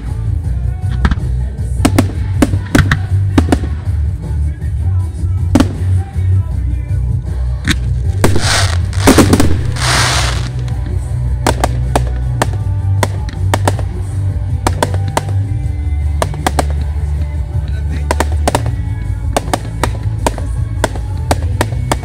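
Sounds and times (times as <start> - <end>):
music with heavy bass: 0.0 - 22.0
fireworks bursting: 1.7 - 4.3, 5.2 - 6.4, 7.7 - 22.0
sharp firework cracks: 1.8 - 4.0, 5.5 - 6.2, 7.6 - 10.8, 11.4 - 15.5, 16.1 - 17.1, 18.0 - 22.0.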